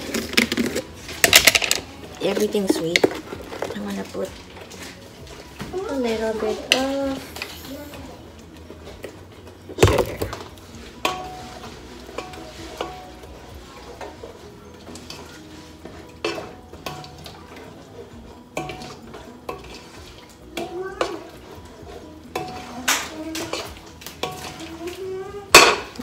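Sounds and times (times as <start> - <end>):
metal spoon clinking on a pot: 11.0 - 26.0.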